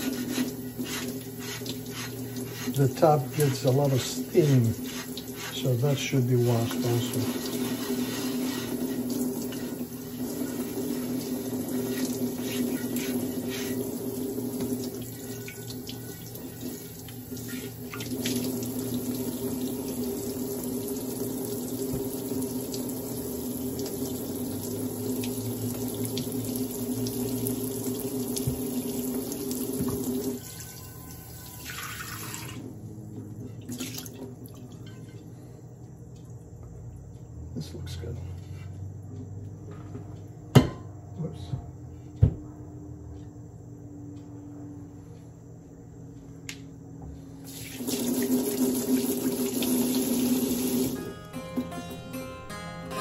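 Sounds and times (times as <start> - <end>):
faucet water splashing into sink: 0.0 - 30.8, 31.4 - 32.6, 33.7 - 34.7, 47.5 - 51.0.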